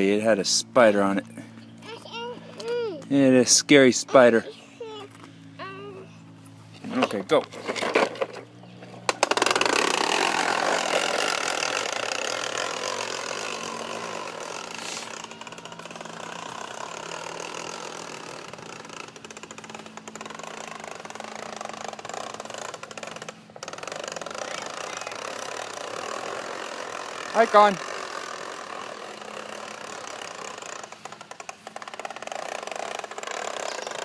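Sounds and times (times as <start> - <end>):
steady low hum: 0.0 - 34.0
toy lawnmower clicking rattle: 9.0 - 34.0.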